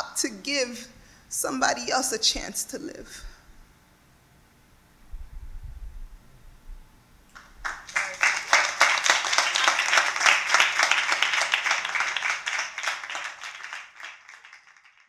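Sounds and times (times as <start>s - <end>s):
small audience applauding: 7.3s - 15.0s.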